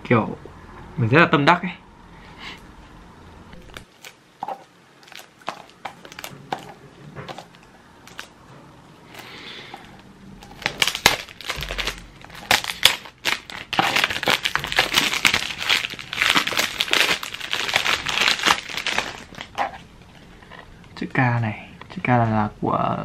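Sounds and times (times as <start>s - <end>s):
cellophane wrap crinkling: 3.6s - 8.3s, 9.1s - 20.3s.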